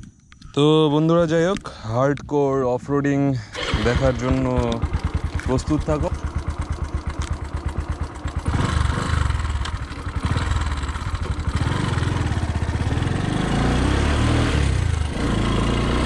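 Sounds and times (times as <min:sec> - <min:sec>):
motorcycle engine idling: 0:03.6 - 0:13.6
motorcycle revving and accelerating: 0:03.6 - 0:16.0.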